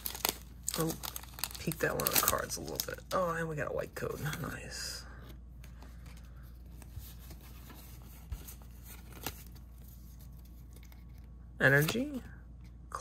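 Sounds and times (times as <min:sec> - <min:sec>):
cards rustling: 0:00.0 - 0:03.2, 0:05.6 - 0:12.3
low steady hum: 0:00.0 - 0:13.0.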